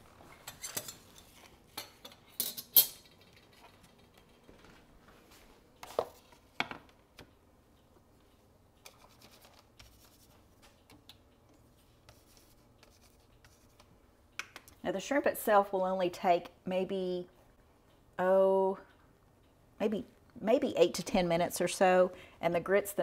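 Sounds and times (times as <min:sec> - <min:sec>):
kitchenware clinking: 0:00.4 - 0:04.2.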